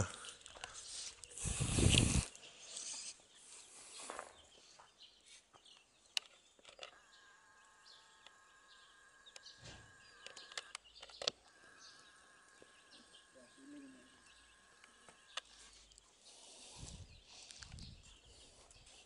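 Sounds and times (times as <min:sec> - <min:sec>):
faint chirps: 0:00.0 - 0:19.0
small clicks: 0:05.7 - 0:13.4
buzzing hum: 0:06.8 - 0:16.0.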